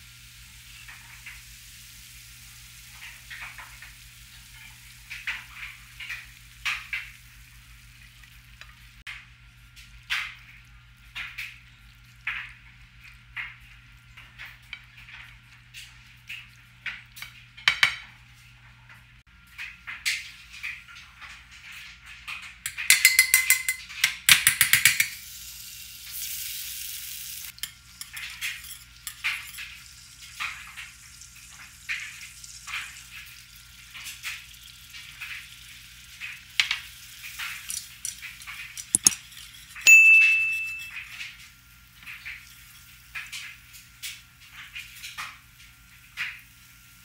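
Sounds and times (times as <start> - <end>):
butter sizzling: 0.0 - 17.8, 25.0 - 40.9
whisk ringing on pan: 22.7 - 23.8, 39.8 - 41.2
fast rattle of taps: 22.7 - 25.2, 38.8 - 39.2.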